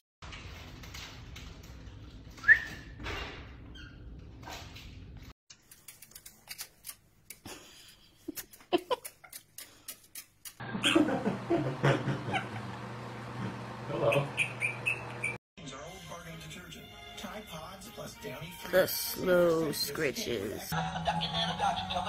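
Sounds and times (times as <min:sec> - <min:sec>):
parrot chirping and chattering: 0:14.1 - 0:15.4.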